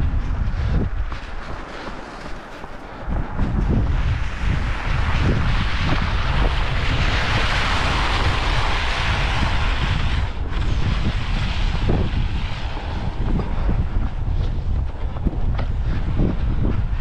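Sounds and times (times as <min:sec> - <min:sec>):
wind buffeting microphone: 0:00.0 - 0:17.0
hiss: 0:04.4 - 0:13.5.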